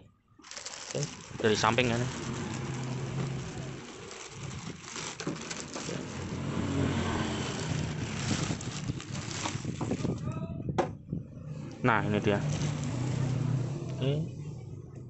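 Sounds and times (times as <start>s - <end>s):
plastic bag crinkling: 0.4s - 10.3s, 12.4s - 13.2s
low engine hum: 1.2s - 15.0s.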